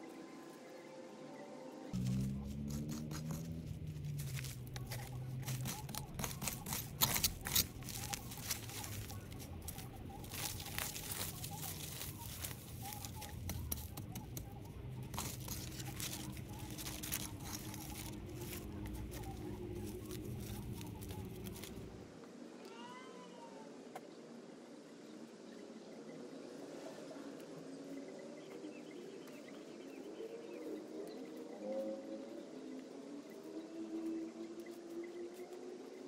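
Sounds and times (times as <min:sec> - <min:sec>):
plant debris crunching and tearing: 0:02.0 - 0:22.0
steady low hum: 0:02.0 - 0:22.1.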